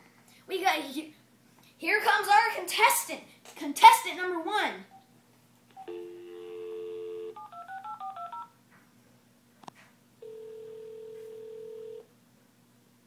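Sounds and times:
keypad tones: 0:05.7 - 0:08.5
telephone dial tone: 0:05.8 - 0:08.5, 0:10.2 - 0:12.0
telephone ring tone: 0:05.8 - 0:08.5, 0:10.2 - 0:12.0.

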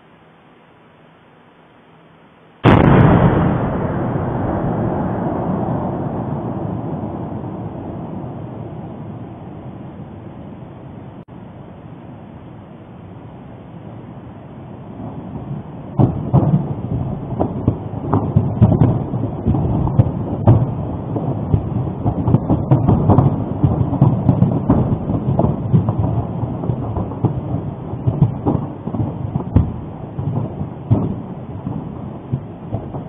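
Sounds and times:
volcano eruption low rumble: 0:02.6 - 0:11.3, 0:14.3 - 0:33.0.

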